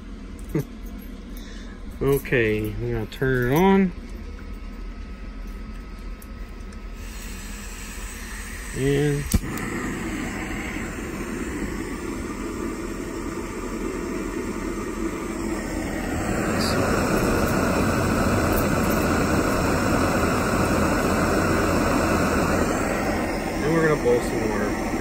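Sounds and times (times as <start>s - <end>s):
gas stove burner rushing: 6.2s - 25.0s.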